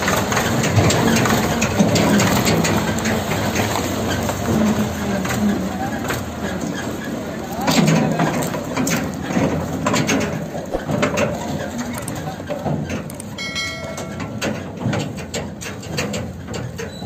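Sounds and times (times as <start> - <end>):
tractor diesel engine running: 0.0 - 17.0
trolley rattling and clanking: 0.0 - 17.0
high-pitched tone: 13.4 - 14.7.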